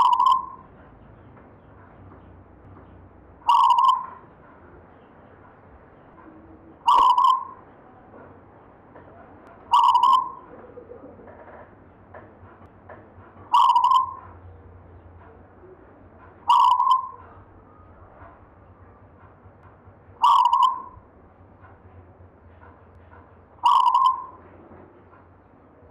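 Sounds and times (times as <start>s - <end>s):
dove cooing: 0.0s - 0.6s, 3.5s - 4.2s, 6.6s - 7.6s, 9.6s - 11.7s, 13.5s - 14.4s, 16.5s - 17.5s, 20.2s - 21.0s, 23.6s - 25.0s.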